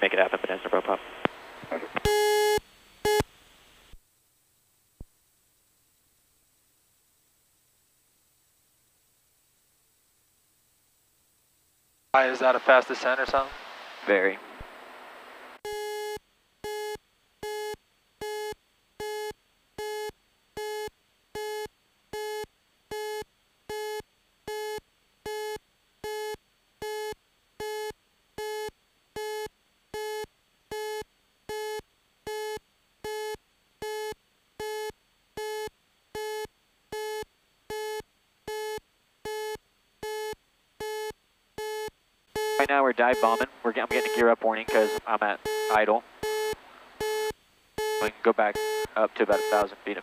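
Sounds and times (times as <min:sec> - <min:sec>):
warning horn beeping: 0:42.4 - 0:45.9.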